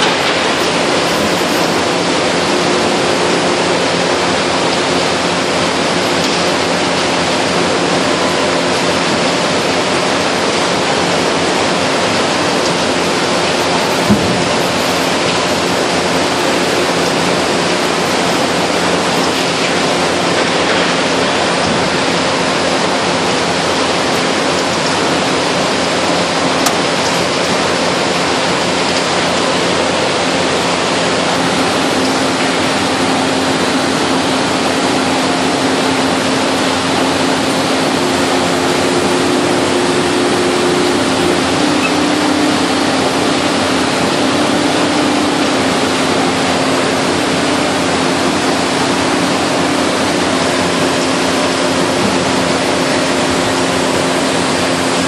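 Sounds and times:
higher hum tone: 0.0 - 25.7, 29.4 - 55.0
baler machine running: 0.0 - 55.0.

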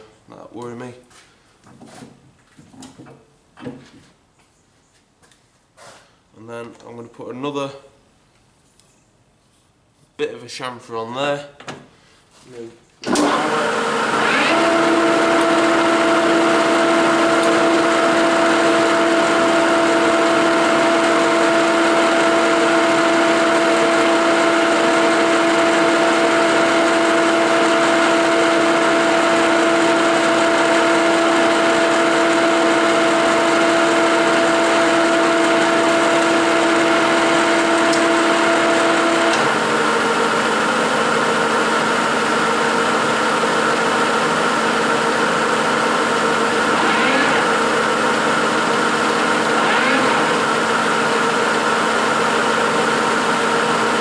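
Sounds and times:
steady machine whine: 13.1 - 54.0
lathe machine hum: 13.2 - 54.0.

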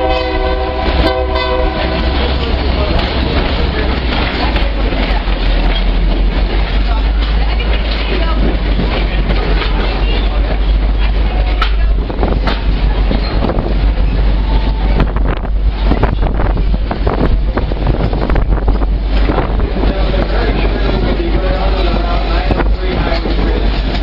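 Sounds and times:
train rolling: 0.0 - 24.0
wind buffeting microphone: 0.0 - 24.0
knocks from train wheels: 2.3 - 14.0.

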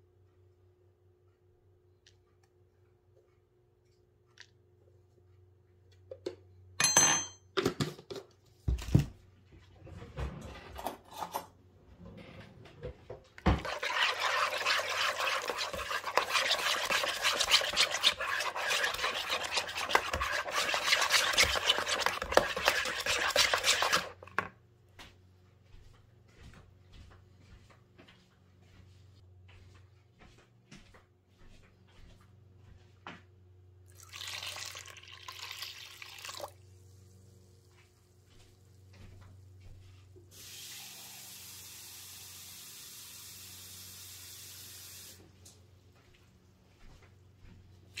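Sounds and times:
knocks and clinks: 6.8 - 7.6
whisk beating in plastic bowl: 13.4 - 24.5.

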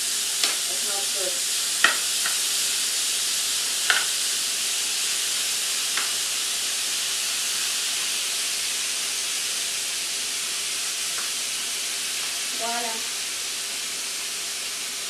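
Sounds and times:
meat sizzling in frying pan: 0.0 - 15.0.

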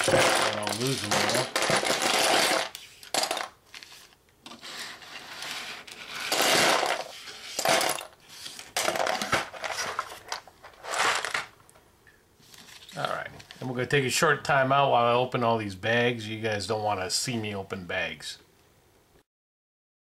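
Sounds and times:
plastic pieces clattering into box: 0.0 - 4.6, 5.7 - 11.6.

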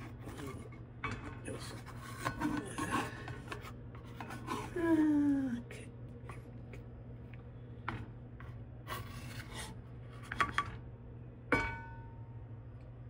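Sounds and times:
low steady hum: 0.0 - 13.0
spatula scraping in skillet: 1.5 - 4.8, 8.4 - 10.4.

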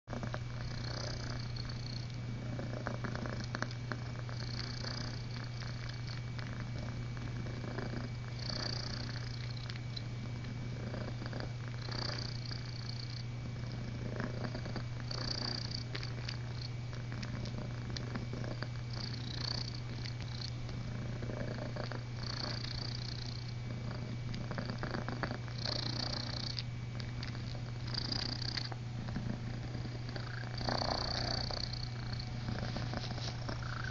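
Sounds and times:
kitten purring: 0.1 - 33.9
paws rustling and scratching cloth: 32.2 - 33.9.

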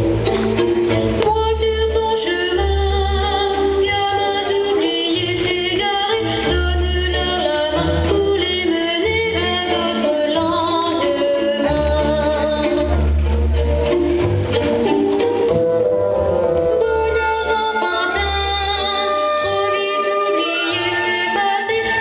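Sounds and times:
high singing voice with vibrato: 16.7 - 22.0.

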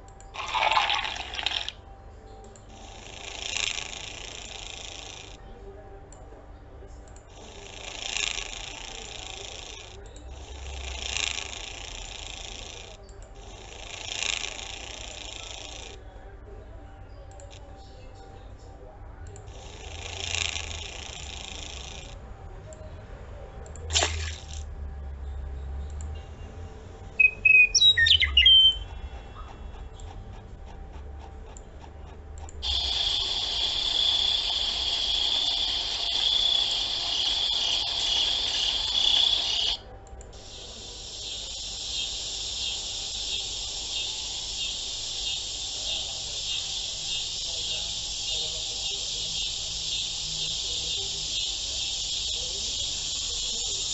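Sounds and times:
high-pitched insect chirring: 0.3 - 1.8, 2.8 - 5.4, 7.3 - 16.0, 19.5 - 22.1, 32.6 - 39.8, 40.4 - 53.9
bird-like chirps: 27.2 - 30.1, 40.6 - 53.9.

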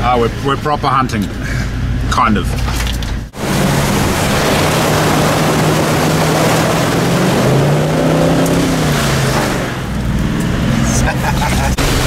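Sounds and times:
vehicle engine pulling: 0.0 - 12.0
water rushing and splashing: 2.5 - 12.0.

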